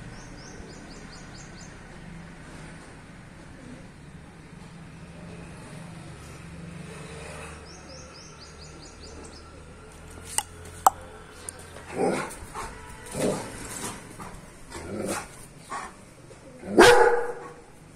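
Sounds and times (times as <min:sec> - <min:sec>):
dog barking: 0:16.7 - 0:17.6.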